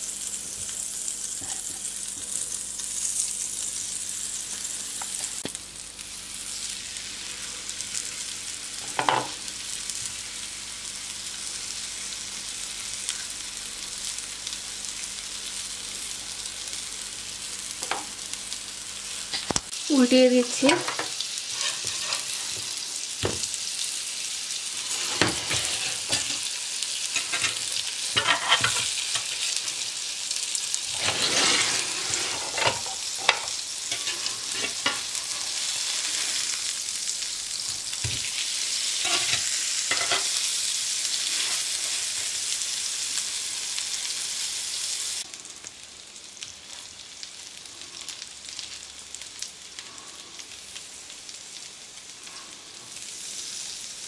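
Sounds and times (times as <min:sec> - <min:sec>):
food sizzling in a grill pan: 0:00.0 - 0:54.0
metal spatula scraping a pan: 0:20.7 - 0:22.6, 0:24.8 - 0:26.5, 0:27.1 - 0:29.8, 0:30.9 - 0:36.6, 0:38.9 - 0:40.4, 0:41.2 - 0:42.3.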